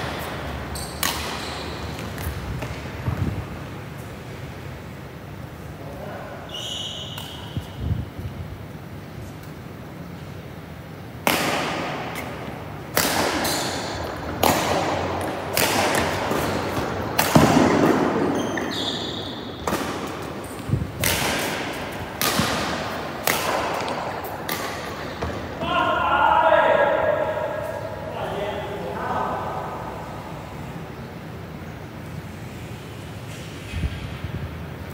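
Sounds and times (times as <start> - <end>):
rackets hitting shuttlecock: 0.0 - 3.2, 11.2 - 25.6.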